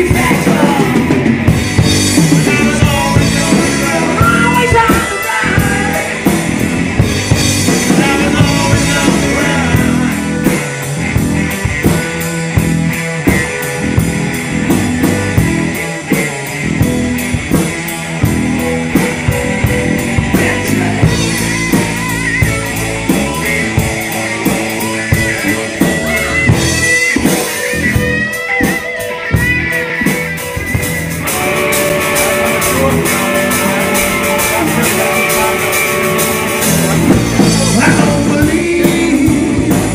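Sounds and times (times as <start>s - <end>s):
man singing lead vocals: 0.0s - 11.0s, 18.6s - 26.9s, 31.4s - 39.9s
bass guitar: 0.0s - 39.9s
drum kit: 0.0s - 39.9s
electric guitar: 0.0s - 39.9s
organ keyboard: 0.0s - 39.9s.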